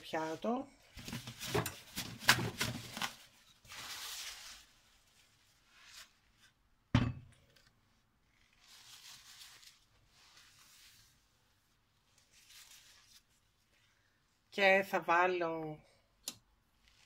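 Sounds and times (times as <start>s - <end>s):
scraping rustle: 2.9s - 6.2s.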